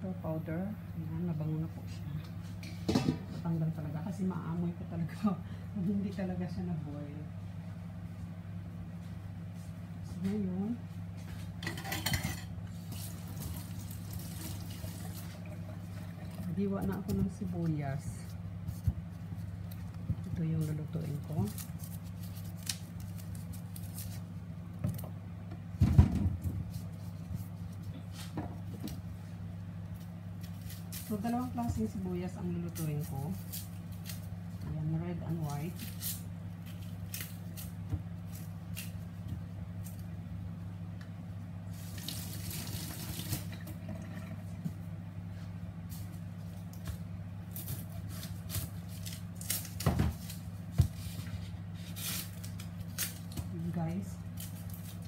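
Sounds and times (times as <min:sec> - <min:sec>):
steady low hum: 0:00.0 - 0:55.0
onion skin crackling: 0:16.4 - 0:25.0, 0:29.7 - 0:34.6, 0:35.2 - 0:40.3, 0:41.6 - 0:43.6, 0:45.8 - 0:55.0.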